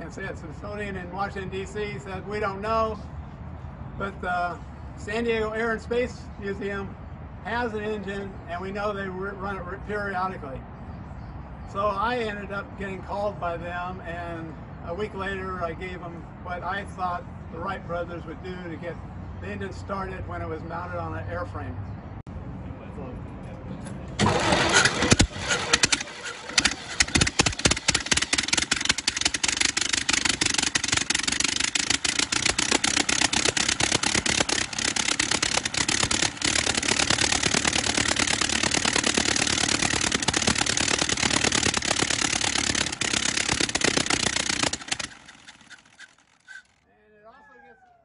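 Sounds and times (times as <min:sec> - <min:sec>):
old aircraft engine firing: 0:24.2 - 0:46.8.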